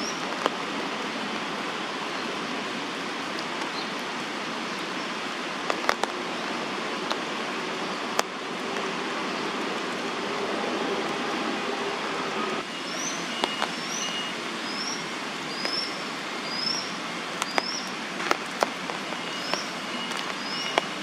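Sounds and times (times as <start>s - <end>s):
sharp ticks: 17.4s - 21.0s.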